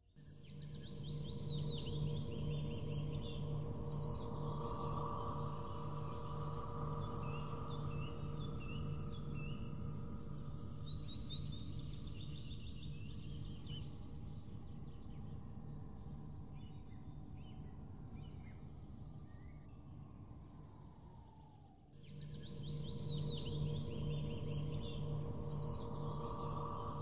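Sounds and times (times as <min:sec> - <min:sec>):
small birds chirping and trilling: 0:00.3 - 0:19.9, 0:22.0 - 0:27.0.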